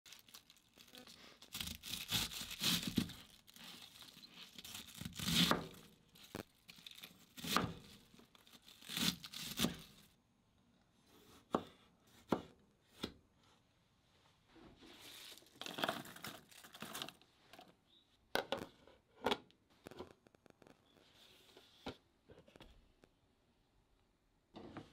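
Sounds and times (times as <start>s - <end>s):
cabbage leaves crunching and tearing: 0.1s - 10.1s.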